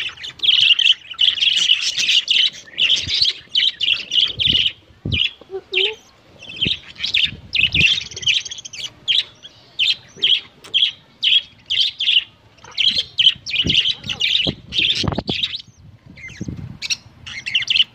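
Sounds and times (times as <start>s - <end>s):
chicks cheeping: 0.0s - 17.9s.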